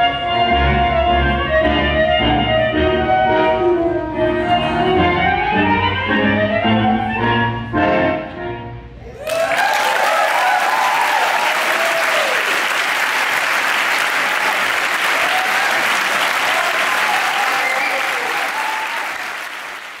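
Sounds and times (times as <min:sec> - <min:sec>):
people cheering: 0:09.0 - 0:20.0
audience applause: 0:09.2 - 0:20.0.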